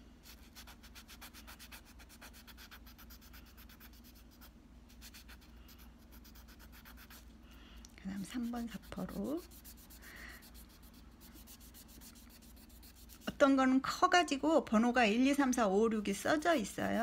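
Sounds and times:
nail buffer rubbing fingernail: 0.3s - 7.2s, 8.2s - 13.3s.

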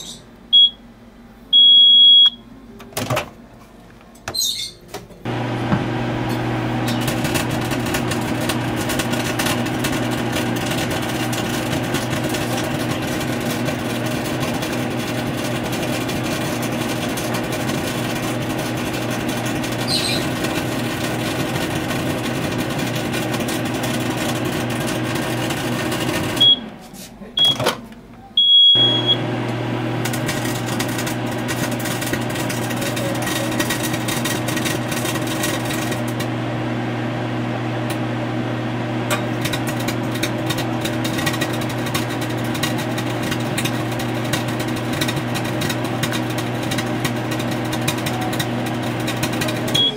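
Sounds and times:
high keypad beeps: 0.0s - 0.8s, 1.6s - 2.4s, 26.4s - 26.6s, 27.4s - 27.6s, 28.4s - 29.2s
microwave oven humming: 0.0s - 49.9s.

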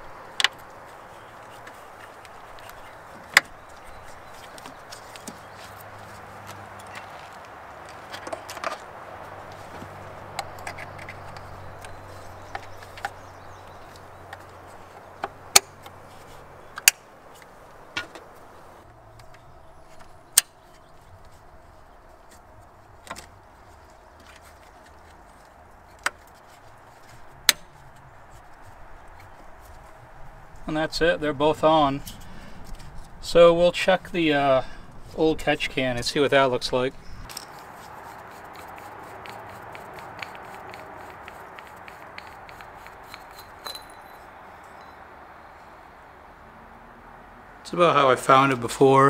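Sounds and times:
faint background noise: 0.0s - 49.0s.

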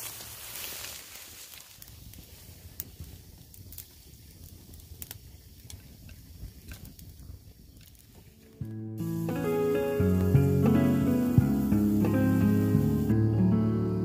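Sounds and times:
campfire crackling and popping: 0.0s - 13.2s
low fire rumble: 0.0s - 14.0s.

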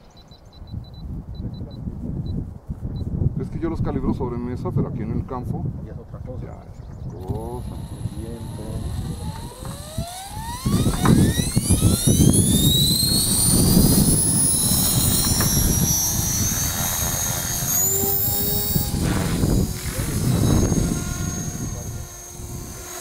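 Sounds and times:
electric motor whine: 7.2s - 23.0s.

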